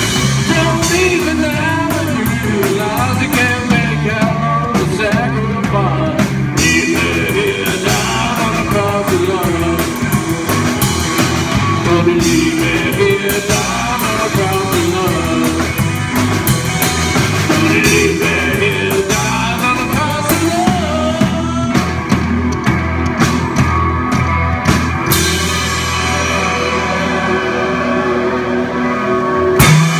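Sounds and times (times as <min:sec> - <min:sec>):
person singing lead vocal: 0:00.0 - 0:10.6, 0:11.6 - 0:16.0, 0:17.4 - 0:22.2, 0:26.0 - 0:29.8
drum kit: 0:00.0 - 0:29.9
electric guitar: 0:00.0 - 0:29.9
upright double bass: 0:00.0 - 0:29.9.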